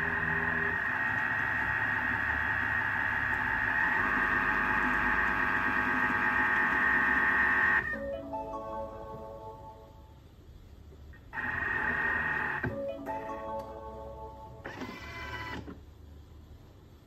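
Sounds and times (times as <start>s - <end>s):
mixer motor whirring: 0.0s - 7.9s, 11.4s - 12.7s.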